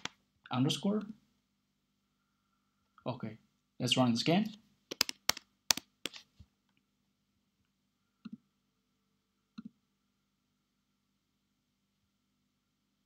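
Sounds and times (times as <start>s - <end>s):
mouse clicks: 4.9s - 6.3s.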